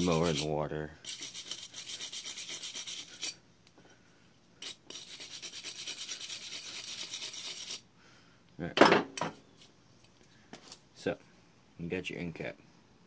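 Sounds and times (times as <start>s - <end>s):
scrubbing strokes on metal cap: 0.0s - 3.4s, 4.6s - 7.8s.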